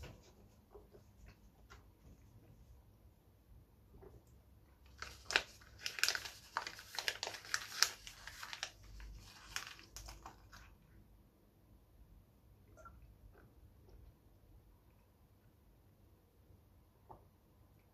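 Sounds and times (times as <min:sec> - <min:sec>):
paper crinkling and tearing: 0:04.9 - 0:10.7.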